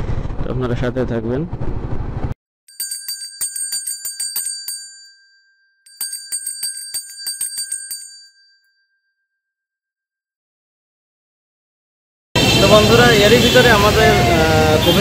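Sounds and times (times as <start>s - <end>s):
brass hand bell ringing: 2.7s - 9.2s.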